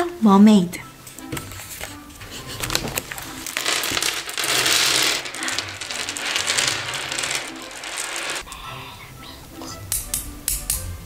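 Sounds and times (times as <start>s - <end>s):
plastic candy bag rustling: 2.3s - 8.4s
candy sticks spilling onto table: 2.6s - 8.4s.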